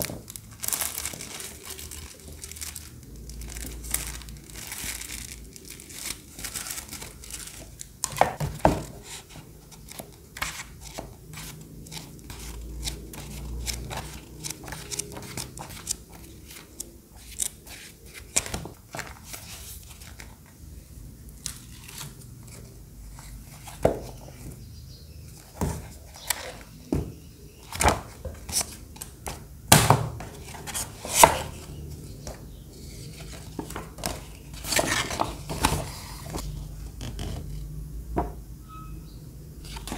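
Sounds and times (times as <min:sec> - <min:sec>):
plastic sleeve crinkling: 0:00.0 - 0:09.1
pages flipping: 0:00.0 - 0:20.6, 0:21.4 - 0:24.5, 0:25.4 - 0:26.8, 0:27.6 - 0:37.6, 0:39.6 - 0:39.9
posters shuffling: 0:00.0 - 0:20.7, 0:25.3 - 0:37.4.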